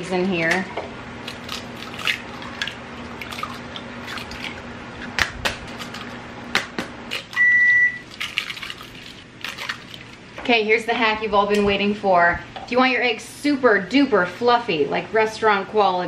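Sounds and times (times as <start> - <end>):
faint steady hum: 0.0 - 16.0
kitchen appliance beep: 7.3 - 8.0.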